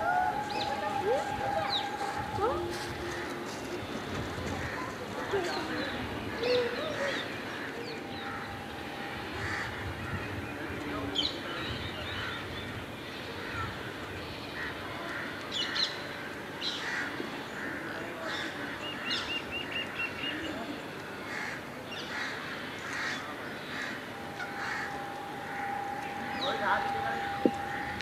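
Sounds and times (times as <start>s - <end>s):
birds calling: 0.0s - 28.0s
outdoor background noise: 0.0s - 28.0s
crow cawing: 7.0s - 10.3s, 21.3s - 26.4s
short evenly spaced chirps: 24.0s - 28.0s.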